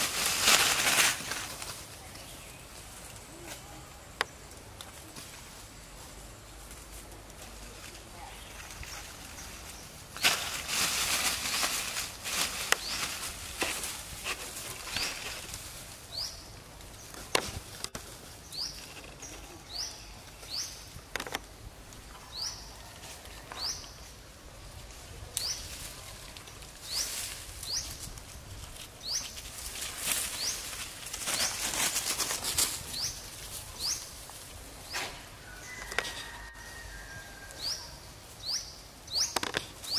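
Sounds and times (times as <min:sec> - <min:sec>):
leaves and branches rustling: 0:00.0 - 0:39.9
bird chirping: 0:37.6 - 0:39.9.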